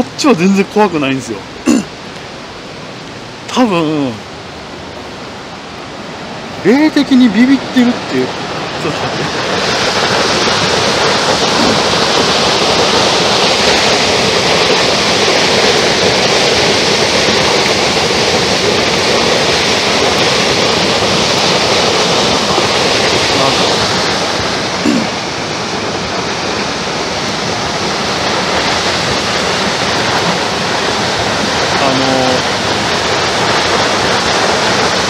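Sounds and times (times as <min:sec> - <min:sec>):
water rushing: 0:00.0 - 0:35.0.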